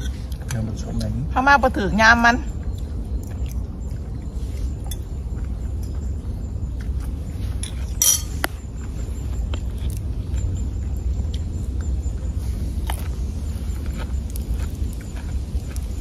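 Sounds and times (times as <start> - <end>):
low rumble: 0.0 - 16.0
spoon clinking on dishes: 7.6 - 8.5.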